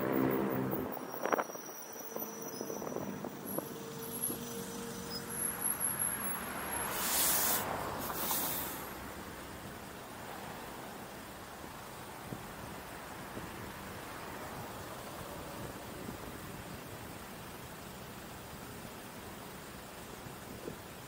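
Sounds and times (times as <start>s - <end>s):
passing vehicle engine drone: 0.0s - 11.0s
road noise: 0.0s - 21.0s
short hisses: 6.9s - 8.9s.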